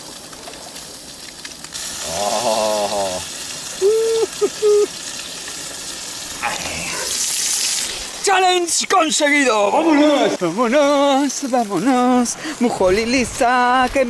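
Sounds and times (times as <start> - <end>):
fish sizzling in hot oil: 0.0 - 13.6
person humming: 2.0 - 3.2, 3.8 - 4.9.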